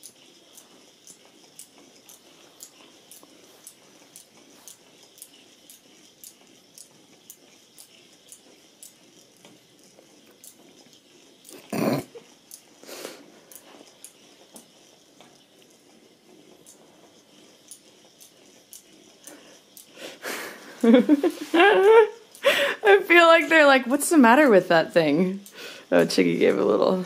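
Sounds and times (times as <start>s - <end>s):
toy ball clicking on carpet: 0.0s - 27.0s.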